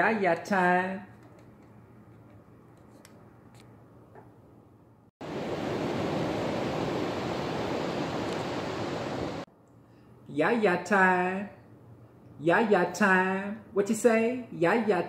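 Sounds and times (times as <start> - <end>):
ocean surf on a beach: 5.2 - 9.5.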